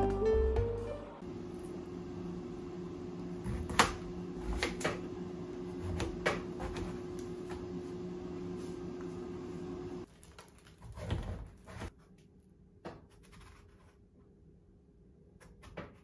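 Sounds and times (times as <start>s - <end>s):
steady mechanical hum: 1.2s - 10.1s.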